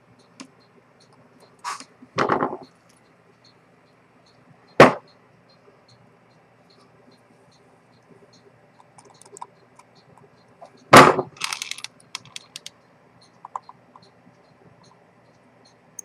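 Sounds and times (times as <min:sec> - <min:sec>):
sharp loud knock: 0:04.8 - 0:05.0, 0:10.9 - 0:11.3
fine metal tools ticking on watch: 0:05.1 - 0:10.8, 0:11.6 - 0:16.0
rattle of small clicks: 0:08.8 - 0:09.5, 0:11.3 - 0:12.8.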